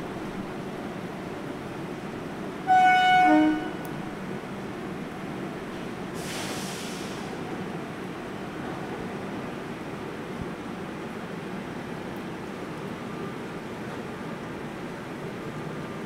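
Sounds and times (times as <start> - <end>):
steady rain: 0.0 - 16.0
train horn blast: 2.6 - 4.0
faint hiss: 6.0 - 7.8.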